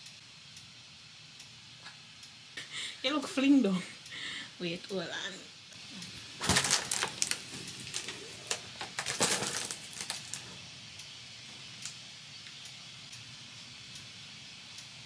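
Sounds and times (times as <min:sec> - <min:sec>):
rustling handling noise: 0:06.1 - 0:10.6.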